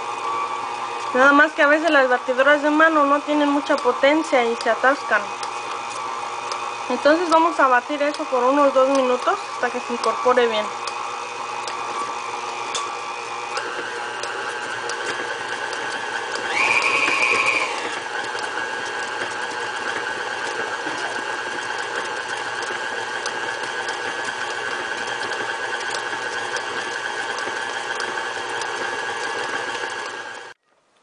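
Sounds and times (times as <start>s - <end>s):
stand mixer beating dough: 0.0s - 30.6s.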